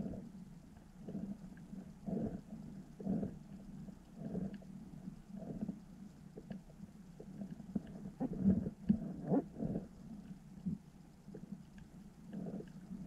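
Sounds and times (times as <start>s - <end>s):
underwater low hum: 0.0s - 13.0s
faint clicks: 2.9s - 9.4s, 10.1s - 13.0s
muffled knocks and gurgles: 5.4s - 9.9s.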